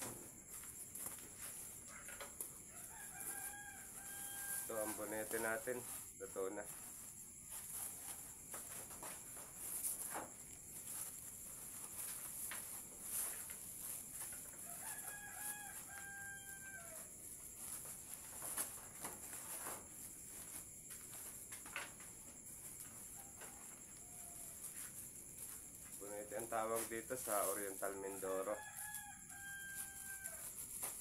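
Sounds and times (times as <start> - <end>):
rooster crowing: 1.8 - 5.9, 14.4 - 17.2, 23.1 - 24.9, 28.2 - 30.6
steady high hiss: 19.5 - 28.6.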